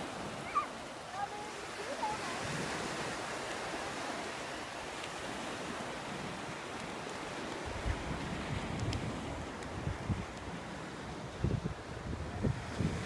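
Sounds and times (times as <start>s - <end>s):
surf washing up a beach: 0.0s - 13.0s
wind buffeting microphone: 5.2s - 13.0s.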